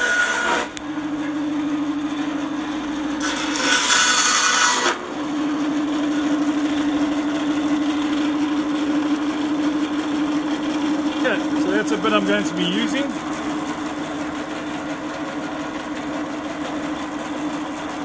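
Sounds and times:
bandsaw humming: 0:00.0 - 0:18.0
bandsaw blade cutting horn: 0:03.2 - 0:05.0.

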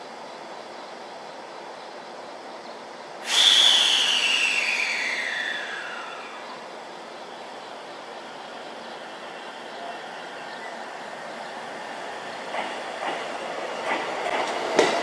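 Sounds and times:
electric train whistle-like tone: 0:03.3 - 0:06.6.

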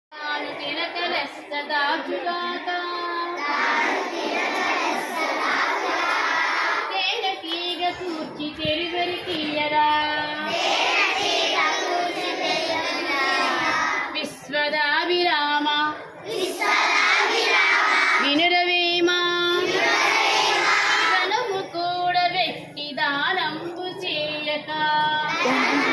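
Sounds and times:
children singing: 0:02.5 - 0:06.9, 0:10.4 - 0:14.2, 0:16.1 - 0:18.3, 0:19.5 - 0:21.3, 0:25.2 - 0:25.9.

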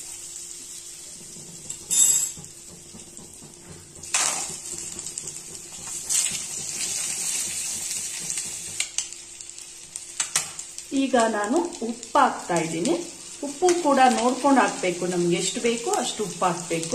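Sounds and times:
butter sizzling in a pan: 0:00.0 - 0:16.9.

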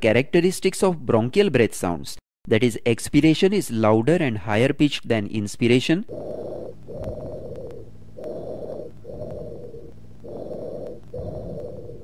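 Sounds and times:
bronchial breathing through stethoscope: 0:06.0 - 0:12.0.

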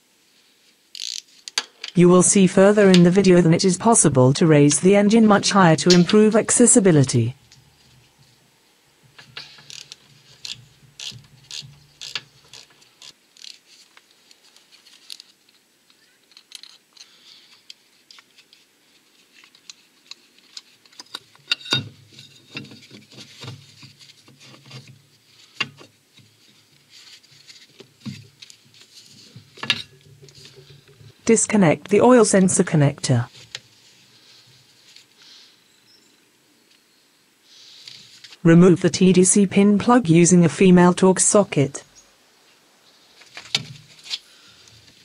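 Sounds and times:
ratchet clicking: 0:00.9 - 0:01.7, 0:09.2 - 0:13.6
metal clinking on metal: 0:21.4 - 0:22.7.

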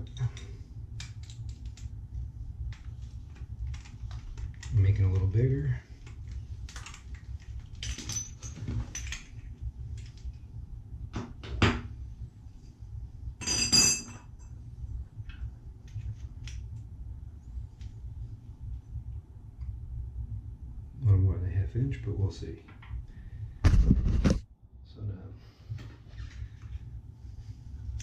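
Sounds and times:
metallic clink: 0:13.4 - 0:14.3.

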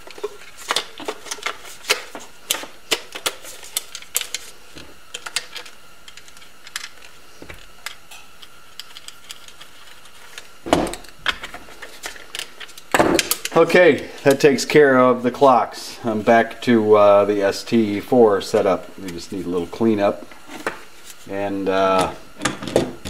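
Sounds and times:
plastic parts clicking and tapping: 0:00.1 - 0:08.0.

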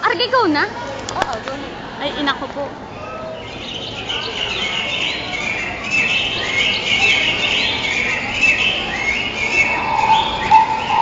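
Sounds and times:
bird-like chirping: 0:03.4 - 0:11.0
steady held tone: 0:08.9 - 0:11.0.

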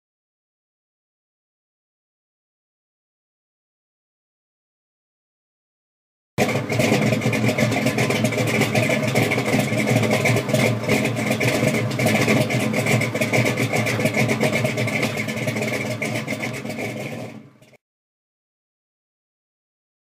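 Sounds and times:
car engine running: 0:06.4 - 0:17.8.

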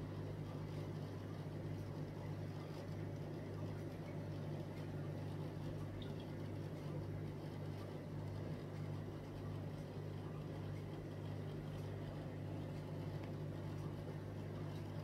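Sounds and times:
aquarium equipment hum: 0:00.0 - 0:15.0.

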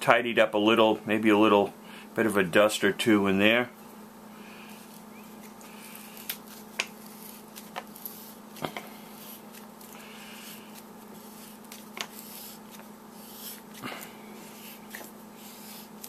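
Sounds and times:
skin rubbing on metal: 0:04.7 - 0:16.0.

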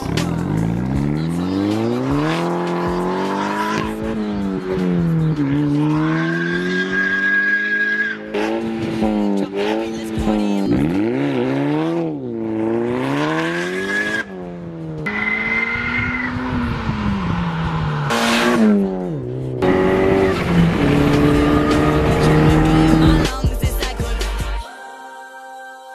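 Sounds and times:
car engine revving: 0:00.0 - 0:23.4.

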